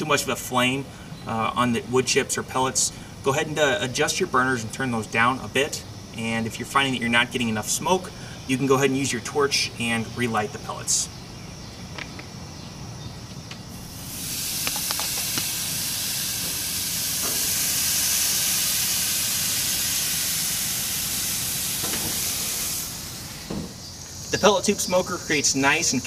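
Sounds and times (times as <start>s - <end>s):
patties sizzling on a grill: 13.7s - 26.0s.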